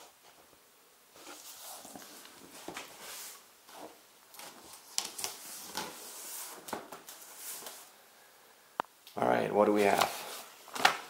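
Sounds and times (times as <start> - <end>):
cardboard and paper rustling: 1.2 - 7.9, 9.8 - 11.0.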